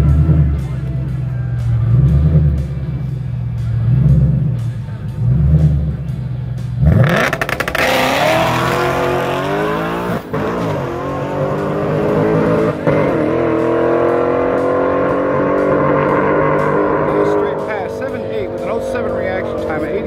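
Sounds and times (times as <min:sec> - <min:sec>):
car engine revving hard: 0:06.8 - 0:20.0.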